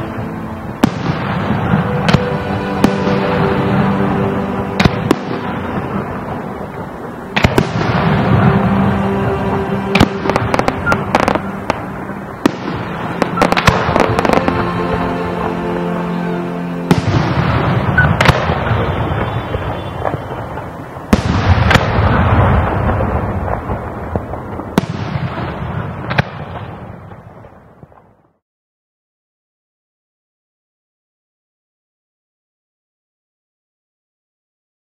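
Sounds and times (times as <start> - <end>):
background music: 0.0 - 25.6
fireworks bangs: 0.0 - 28.4
fireworks crackling: 0.0 - 28.4.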